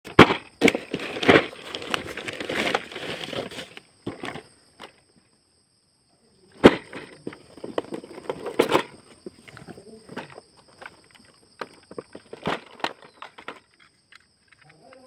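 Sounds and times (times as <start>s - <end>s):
cardboard box rustling and scraping: 0.2s - 5.0s, 6.6s - 11.0s.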